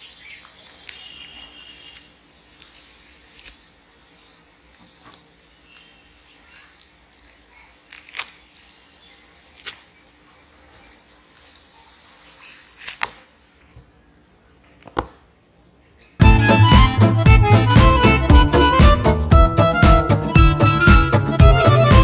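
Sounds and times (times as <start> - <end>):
banana skin snapping: 0.0 - 1.4, 2.5 - 3.7, 6.0 - 10.2, 10.8 - 13.3
banana skin tearing: 0.0 - 3.9, 5.1 - 13.3
violin music: 16.2 - 22.0.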